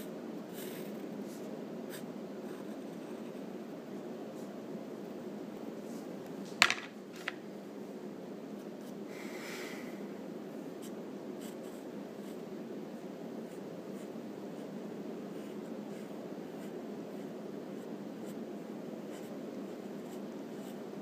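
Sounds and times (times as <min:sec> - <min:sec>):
pencil scratching on paper: 0:15.3 - 0:18.4, 0:19.1 - 0:20.8.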